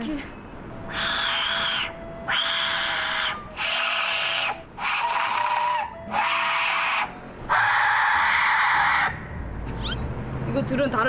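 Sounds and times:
breathy hissing whistle shrieks: 0.8 - 9.2.

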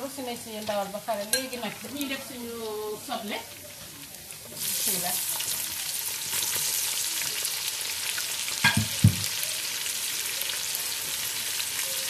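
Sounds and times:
onions and meat sizzling in oil: 0.0 - 12.0
knocks against metal pot: 8.6 - 9.3.

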